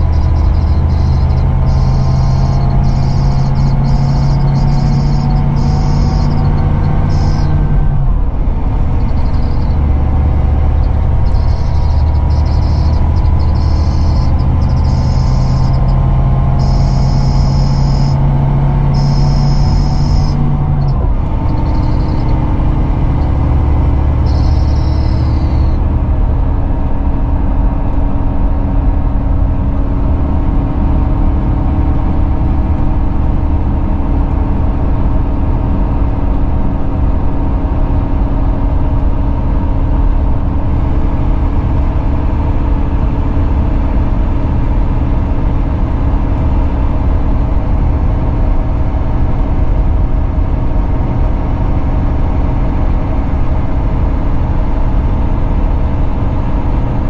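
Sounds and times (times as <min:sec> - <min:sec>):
diesel engine drone: 0:00.0 - 0:57.0
road and tyre noise: 0:00.0 - 0:57.0.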